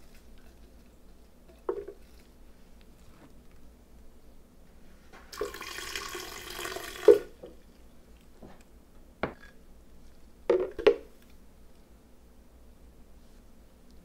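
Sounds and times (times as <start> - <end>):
water pouring: 5.3 - 7.4.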